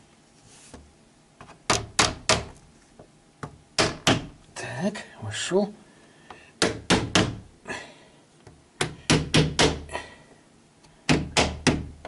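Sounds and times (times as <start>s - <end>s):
sharp knocks on plastic window frame: 1.6s - 2.6s, 3.4s - 4.4s, 6.6s - 7.4s, 8.8s - 9.9s, 11.1s - 12.0s.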